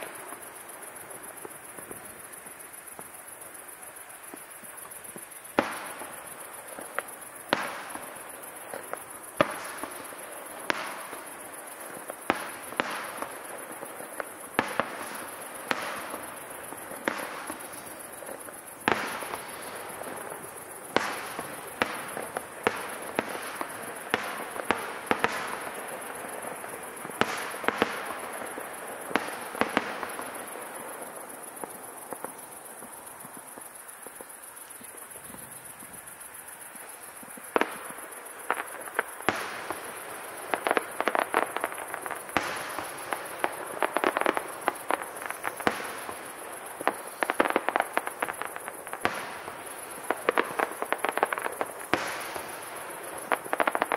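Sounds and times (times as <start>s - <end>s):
fireworks bursting with sharp bangs: 0.0s - 53.9s.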